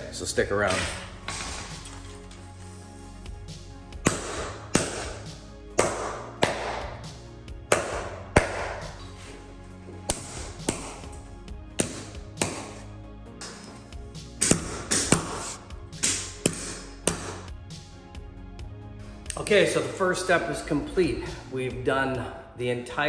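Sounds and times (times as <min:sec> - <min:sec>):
background music: 0:00.0 - 0:23.0
hammer striking nails: 0:04.0 - 0:05.2, 0:05.8 - 0:07.0, 0:07.7 - 0:08.9, 0:11.8 - 0:12.8, 0:14.4 - 0:17.5.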